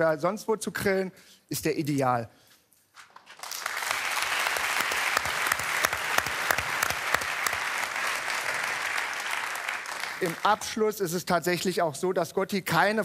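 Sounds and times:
audience applauding: 3.3 - 10.8.

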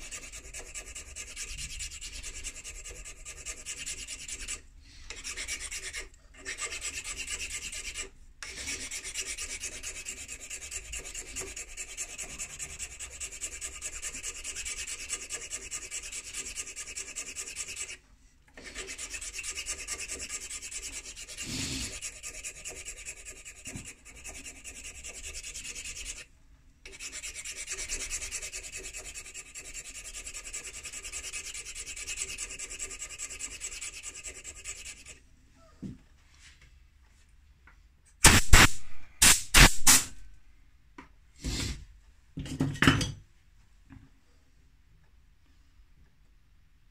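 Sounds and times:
hand file rasping: 0.0 - 18.0, 18.6 - 26.3, 26.9 - 35.2.

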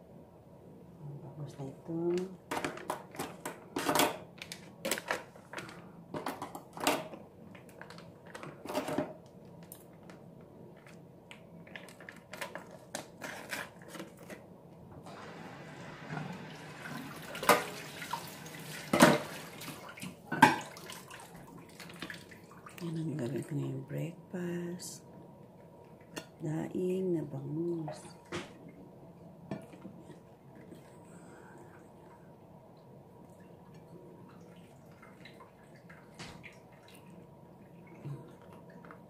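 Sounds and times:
water running into sink: 15.1 - 22.8.

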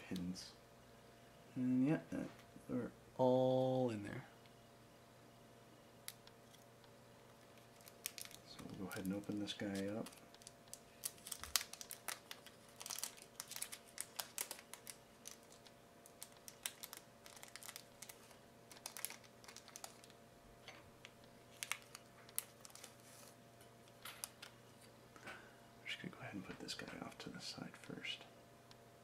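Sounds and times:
packaging crinkling: 7.4 - 20.2, 21.0 - 24.5.

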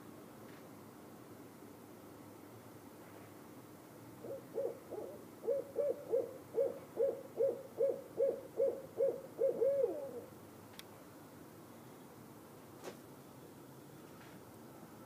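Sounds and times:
owl hooting: 4.2 - 10.4.

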